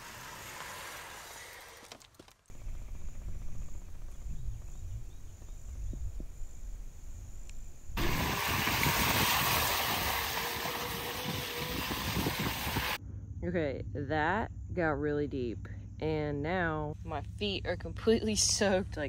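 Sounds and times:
faint motor whine: 0:00.0 - 0:08.0
wind rumble on microphone: 0:02.6 - 0:13.0
bike splashing through water: 0:08.0 - 0:13.0.

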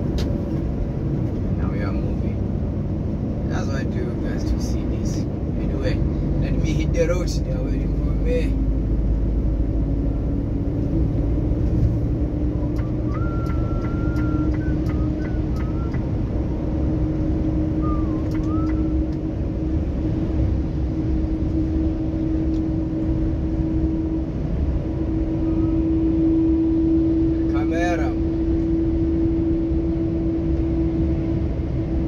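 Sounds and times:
truck engine and road drone: 0:00.0 - 0:32.0
short high chirping tones: 0:12.9 - 0:16.1.

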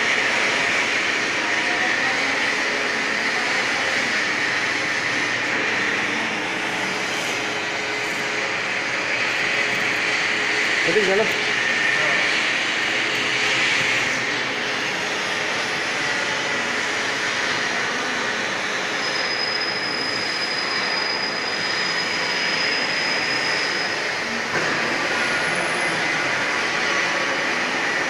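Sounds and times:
thin high-pitched whine: 0:17.5 - 0:27.4
brief high squeal: 0:18.8 - 0:24.4.

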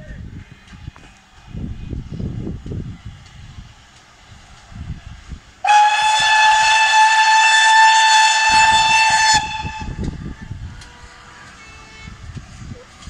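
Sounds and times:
train chuffing: 0:03.5 - 0:13.0
steam locomotive whistle: 0:05.6 - 0:10.2.

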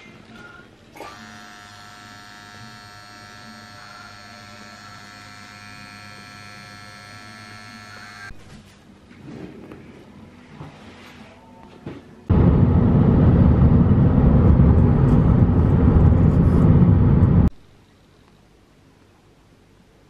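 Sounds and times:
tattoo machine buzzing: 0:01.0 - 0:08.3.

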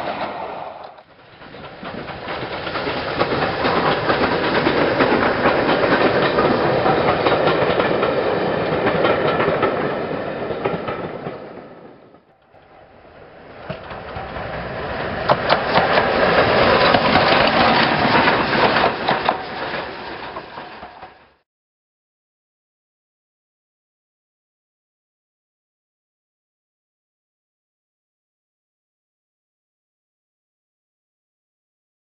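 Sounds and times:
steam locomotive running past: 0:00.0 - 0:21.4
train wheels clicking over rail joints: 0:00.0 - 0:21.4.

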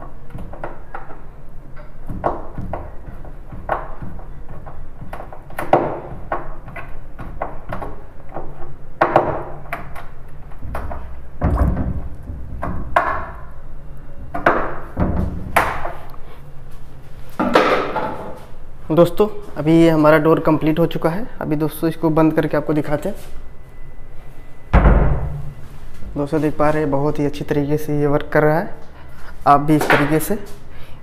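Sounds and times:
heavy knocks: 0:01.8 - 0:09.8, 0:10.6 - 0:13.5, 0:24.7 - 0:25.6.

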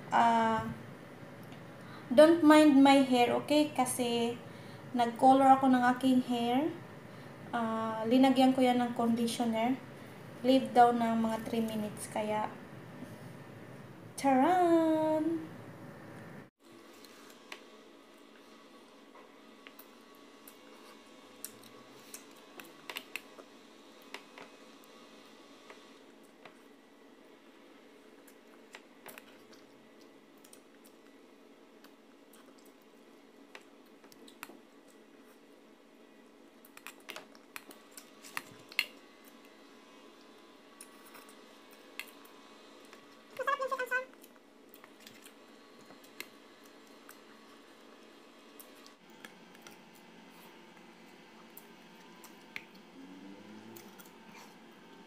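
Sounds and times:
low steady hum: 0:00.0 - 0:55.0
person chewing: 0:44.2 - 0:47.7.

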